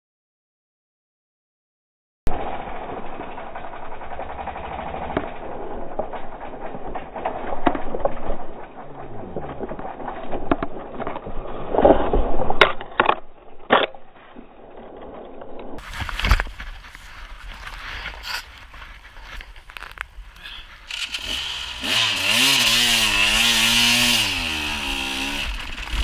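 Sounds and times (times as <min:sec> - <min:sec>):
dirt bike engine running: 0:02.3 - 0:11.3, 0:14.5 - 0:26.0
bike knocking and scraping on rocks: 0:02.3 - 0:26.0.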